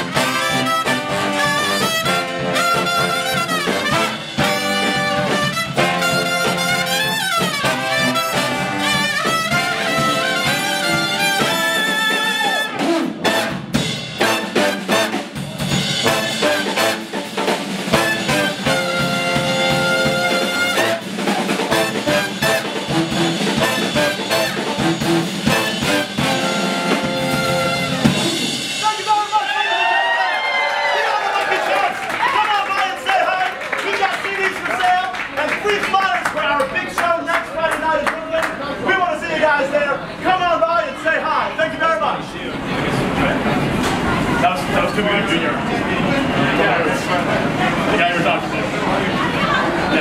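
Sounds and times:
brass band playing: 0.0 - 30.0
drum kit beat: 0.0 - 30.0.

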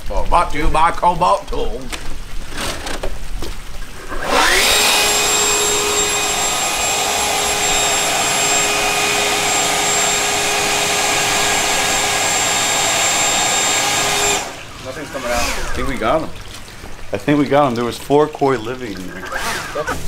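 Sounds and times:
air blowing through drain pipe: 3.8 - 20.0
leaf blower whining: 4.1 - 15.8.

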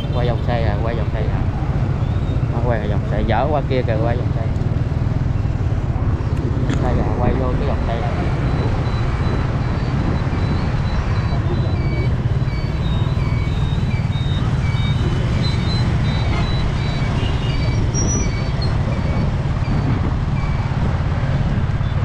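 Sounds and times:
street traffic rumble: 0.0 - 22.0.

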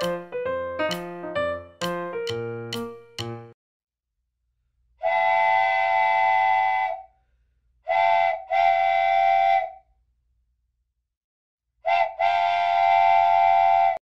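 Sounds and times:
steam train whistle blasts: 5.0 - 7.1, 7.9 - 9.8, 11.9 - 14.0.

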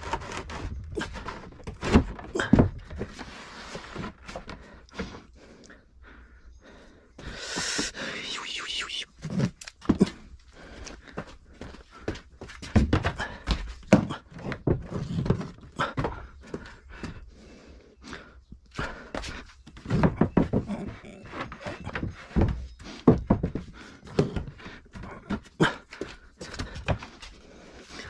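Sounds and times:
knocks thuds and scrapes: 0.0 - 5.2.

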